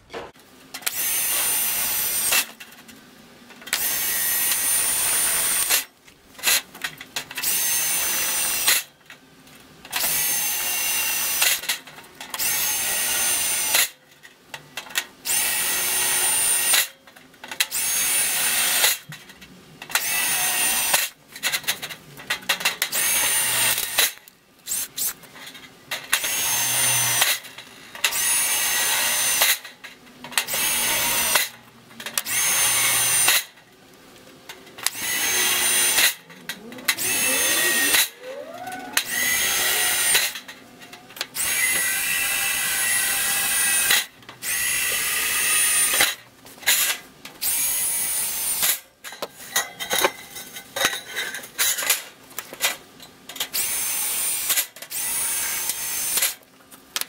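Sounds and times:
cordless drill boring sheet metal: 0.9 - 2.6, 3.7 - 5.9, 7.4 - 8.9, 9.9 - 11.6, 12.4 - 14.0, 15.2 - 17.0, 17.7 - 19.1, 19.9 - 21.2, 22.6 - 25.2, 26.0 - 29.8, 30.4 - 31.6, 32.2 - 33.6, 34.8 - 40.6, 41.3 - 48.8, 53.5 - 56.4.

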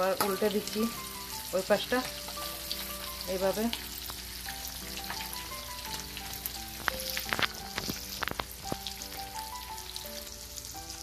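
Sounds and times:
oil sizzling: 0.0 - 11.0
sharp pops and clicks: 6.8 - 9.2.

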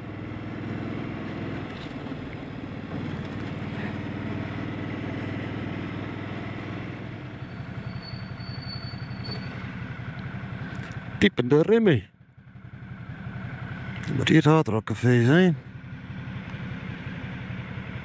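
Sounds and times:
motorcycle engine running: 0.0 - 8.0, 9.5 - 18.0
high-pitched brake squeal: 7.4 - 9.8.

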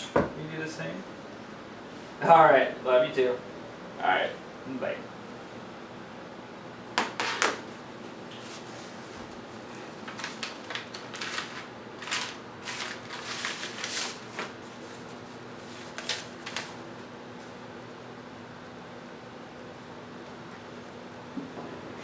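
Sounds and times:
paper rustling: 8.4 - 16.8.

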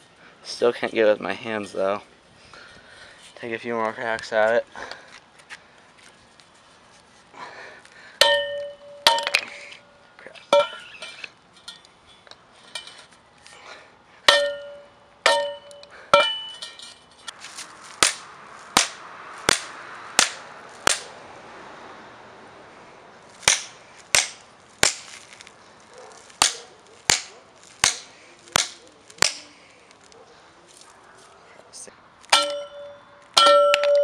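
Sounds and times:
crank arm striking concrete: 8.2 - 9.5, 14.3 - 16.9, 18.0 - 21.1, 23.4 - 25.4, 26.0 - 29.5, 32.3 - 34.0.

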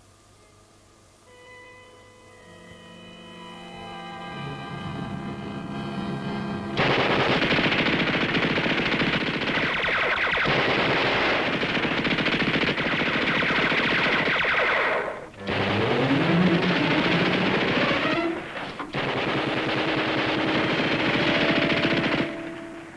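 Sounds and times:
dramatic music: 2.4 - 7.8
machine-gun fire: 6.8 - 22.9.

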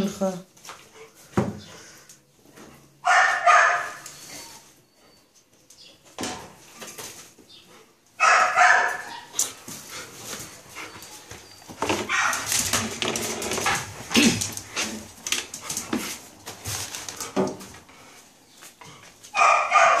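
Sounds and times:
dog barking: 3.0 - 4.0, 8.2 - 9.3, 12.1 - 12.5, 19.4 - 20.0
rustling and knocks of movement: 9.0 - 19.4.

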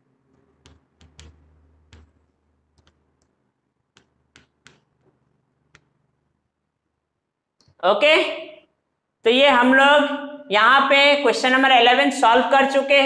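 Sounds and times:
faint sharp clicks and taps: 0.3 - 6.1.

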